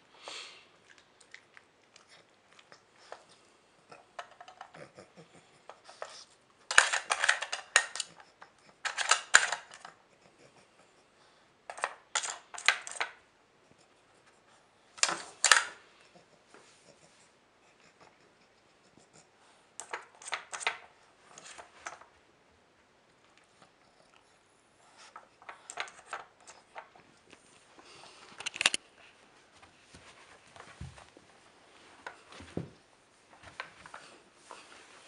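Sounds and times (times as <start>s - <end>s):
plastic puzzle pieces rattling: 6.7s - 8.2s, 8.8s - 9.9s, 11.7s - 13.2s, 15.0s - 15.7s, 19.8s - 22.0s, 25.4s - 26.9s.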